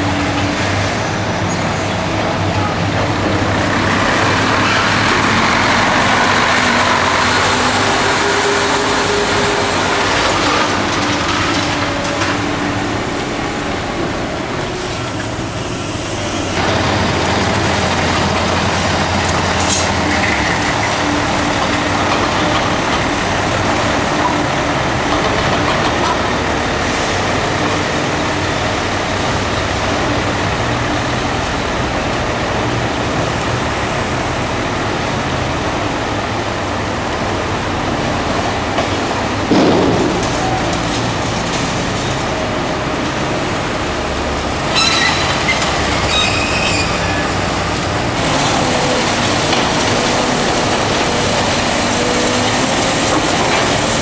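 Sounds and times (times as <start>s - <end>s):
diesel truck engines running: 0.0s - 54.0s.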